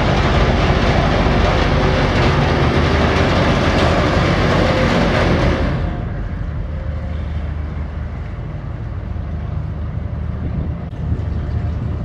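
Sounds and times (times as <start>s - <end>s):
wind on microphone: 10.2s - 12.0s.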